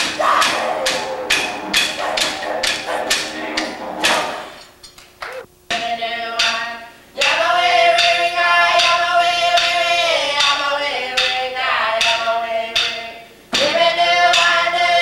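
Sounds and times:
voices singing a held chant: 0.0 - 4.6, 7.2 - 15.0
sharp percussion strikes: 0.0 - 10.6.

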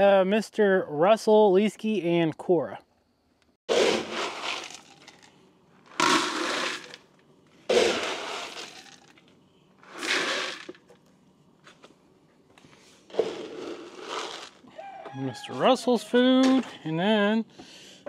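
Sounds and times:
scoop digging into dry kibble: 3.7 - 5.3.

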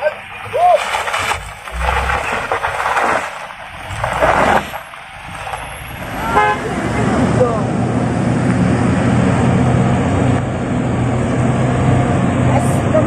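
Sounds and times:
tyres crunching over stones: 0.0 - 6.2
car engine working hard: 0.0 - 13.0.

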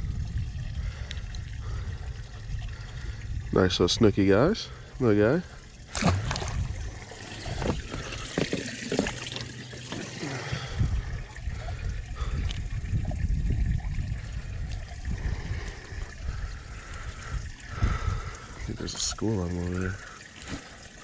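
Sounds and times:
low rumble: 0.0 - 4.8
water trickling: 0.0 - 21.0.

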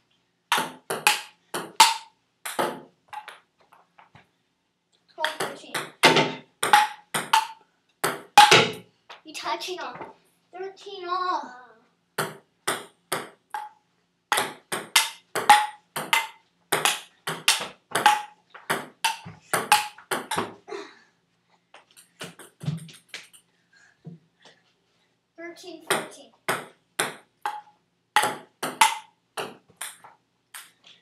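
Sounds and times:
ping-pong ball hitting paddles: 0.5 - 3.4, 5.2 - 8.8, 12.2 - 20.5, 25.9 - 30.7.

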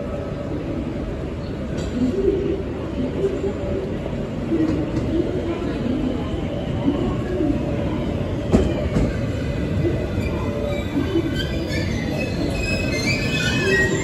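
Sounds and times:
train brakes squealing: 10.1 - 14.0.

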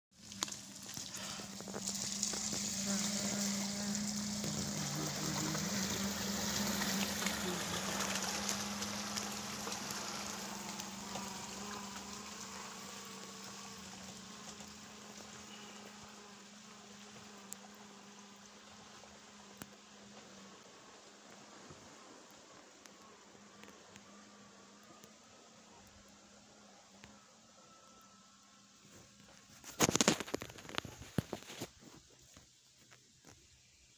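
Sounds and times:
water splashing around tyres: 0.2 - 15.5
car engine hum: 0.2 - 16.8.

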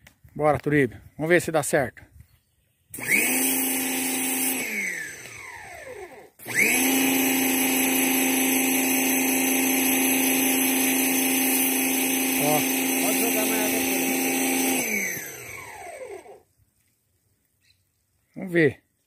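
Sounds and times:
pressure washer motor whining: 2.9 - 16.4
water spraying: 3.0 - 5.3, 6.4 - 15.6.

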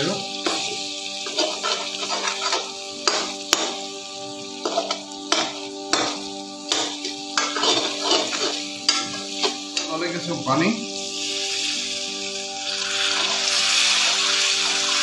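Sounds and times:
oil sizzling in a pan: 0.0 - 15.0
spoon scraping and clinking on pan: 1.2 - 3.8, 4.6 - 9.9.

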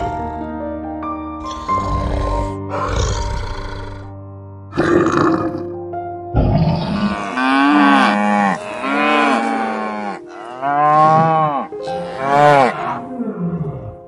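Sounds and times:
cattle mooing: 6.5 - 14.0.

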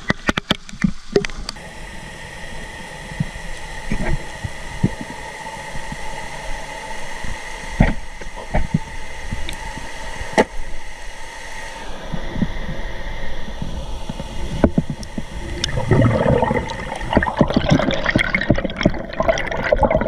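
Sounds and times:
underwater low hum: 0.0 - 20.0
faint high whine: 1.4 - 20.0.

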